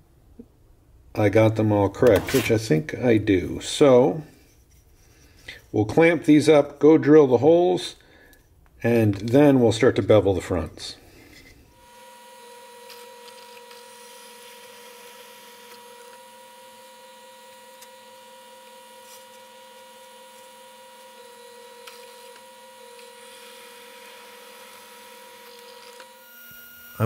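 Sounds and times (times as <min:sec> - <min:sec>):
drill press humming: 0:11.8 - 0:27.0.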